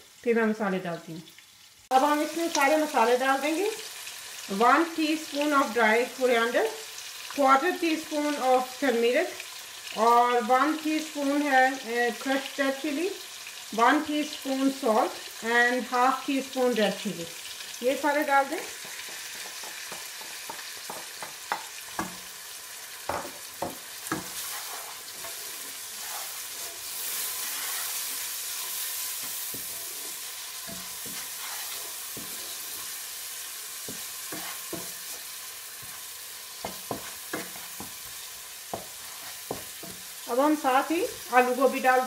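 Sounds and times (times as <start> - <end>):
masala sizzling in hot oil: 0.0 - 42.0
wooden spatula stirring: 18.7 - 22.2, 23.1 - 33.1, 33.7 - 40.1
spatula knocking against pan: 18.8 - 22.2, 23.1 - 24.4, 36.6 - 38.0, 38.7 - 40.0.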